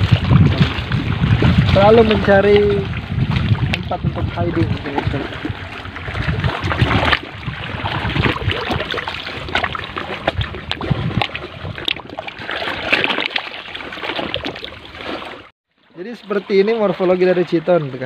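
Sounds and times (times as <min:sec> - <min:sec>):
wind rumble on microphone: 0:00.0 - 0:12.9
sea water washing among rocks: 0:00.0 - 0:15.5.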